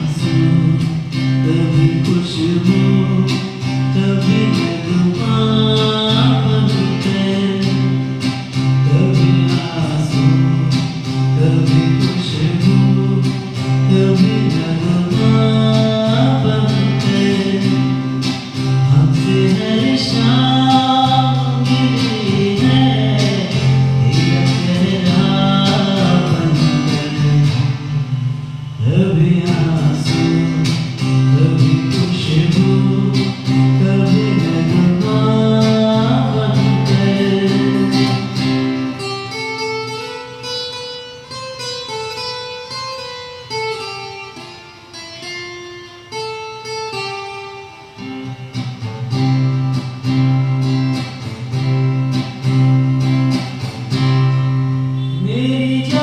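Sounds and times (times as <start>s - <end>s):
man singing into a microphone: 0.0s - 39.0s, 54.9s - 56.0s
strummed acoustic guitar: 0.0s - 56.0s.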